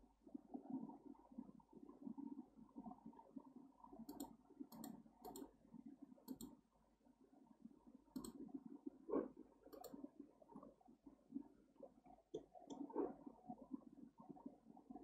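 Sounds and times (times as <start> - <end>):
computer mouse clicking: 4.1 - 5.5, 6.3 - 6.6, 8.1 - 8.4, 9.7 - 10.0, 12.3 - 12.9.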